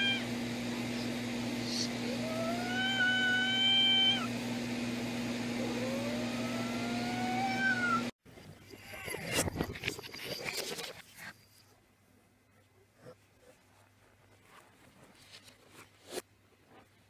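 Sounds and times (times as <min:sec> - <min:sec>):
cat meowing: 0:02.2 - 0:04.3.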